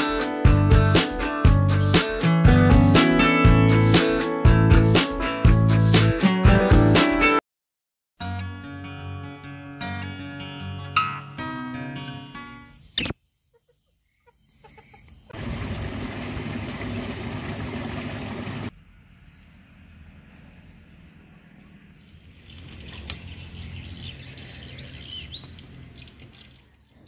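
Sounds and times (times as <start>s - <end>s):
birds chirping: 12.7s - 15.3s, 21.2s - 27.0s.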